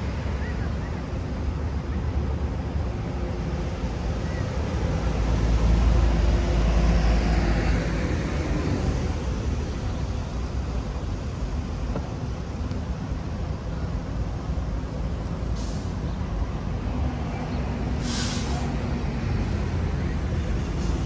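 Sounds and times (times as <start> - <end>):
background traffic noise: 0.0 - 21.0
vehicle passing close by: 5.0 - 9.4.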